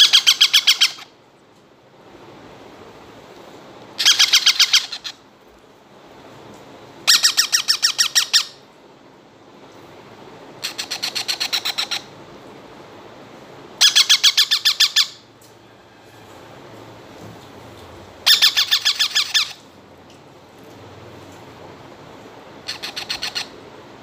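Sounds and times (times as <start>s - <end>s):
parakeet chicks squawking: 0.0s - 1.1s, 4.0s - 5.2s, 7.1s - 8.6s, 10.6s - 12.1s, 13.8s - 15.2s, 18.2s - 19.6s, 22.6s - 23.6s.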